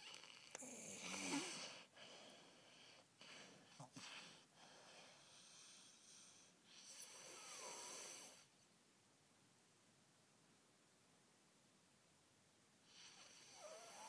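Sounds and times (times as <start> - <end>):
child snoring: 0.0 - 1.9, 5.5 - 8.5, 12.9 - 14.0.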